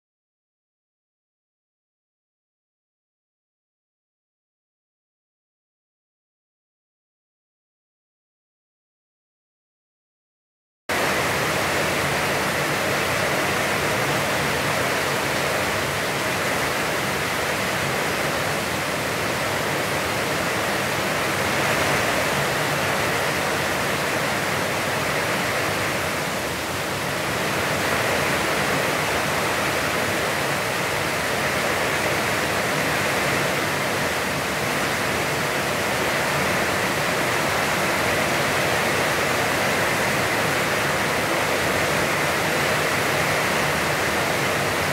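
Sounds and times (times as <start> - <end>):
heavy rain falling: 10.9 - 44.9.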